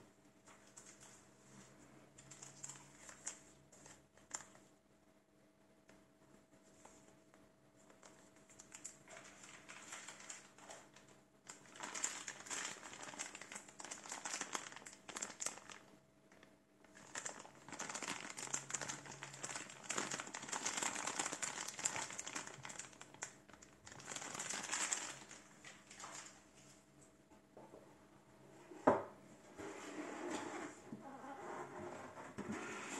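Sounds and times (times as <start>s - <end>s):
plastic bags crinkling: 8.1s - 16.0s, 16.9s - 26.4s.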